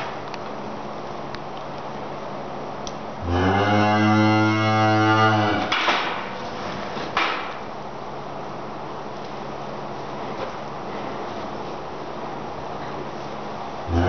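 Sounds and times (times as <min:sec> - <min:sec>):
cow mooing: 0:03.2 - 0:05.8.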